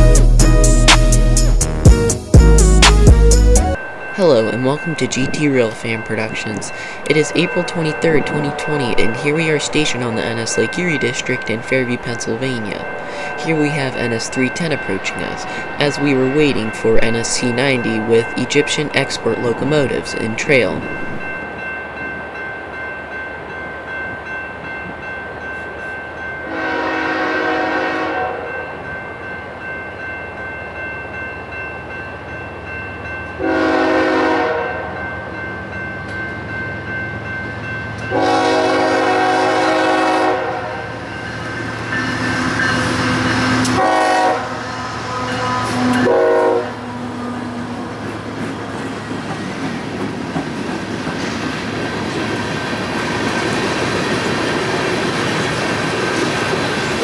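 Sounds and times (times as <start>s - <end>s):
train horn blasts: 26.5s - 28.6s, 33.4s - 34.9s, 38.1s - 41.0s, 42.1s - 47.4s.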